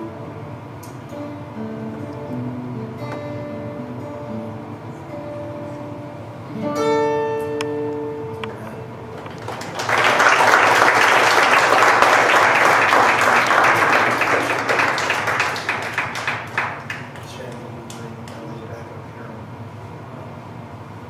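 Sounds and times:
acoustic guitar chord ringing: 0:00.0 - 0:09.5
audience applause: 0:09.2 - 0:17.6.

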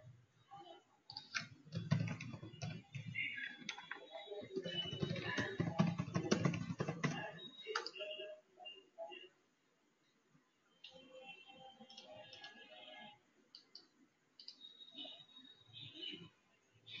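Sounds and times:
computer keyboard typing: 0:01.1 - 0:08.2, 0:11.8 - 0:12.6.

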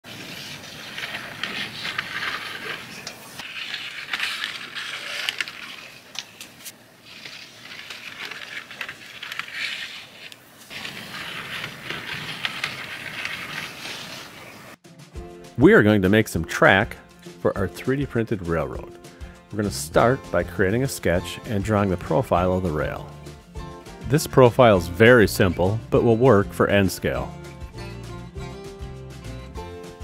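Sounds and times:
model train cars rolling rattle: 0:10.7 - 0:14.2.

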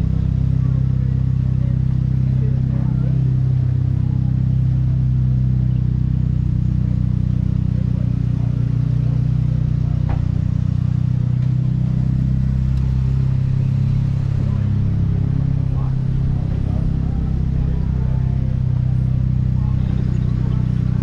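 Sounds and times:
car engine humming: 0:00.0 - 0:21.0.

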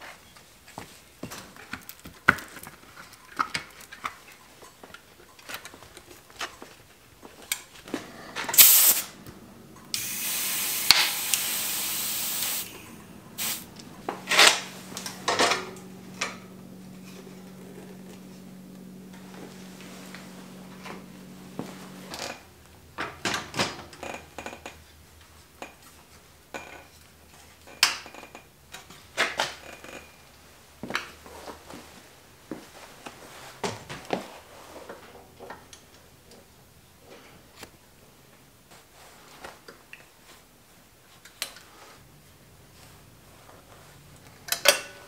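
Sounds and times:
low steady hum: 0:02.6 - 0:32.6
air hissing into tyre: 0:08.5 - 0:09.2, 0:09.9 - 0:13.7.

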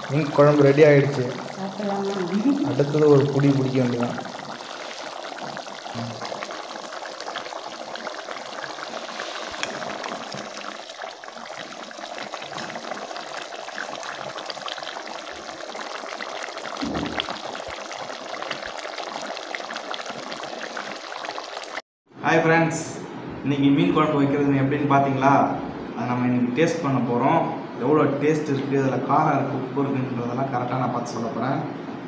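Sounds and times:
curry bubbling in a pot: 0:00.0 - 0:21.8
ladle stirring in a pot: 0:04.2 - 0:15.0
short low thump: 0:16.8 - 0:17.3.

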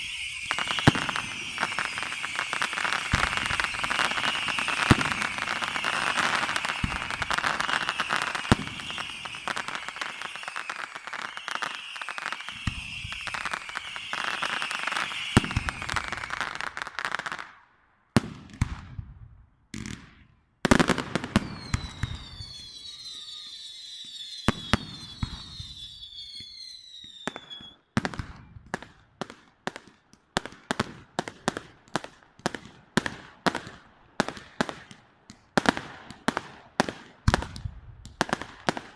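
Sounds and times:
fireworks crackling: 0:00.0 - 0:17.6, 0:19.8 - 0:38.9
fireworks falling whistles: 0:00.0 - 0:17.6, 0:19.8 - 0:28.9
fireworks sharp bangs: 0:00.0 - 0:17.6, 0:18.2 - 0:26.5.

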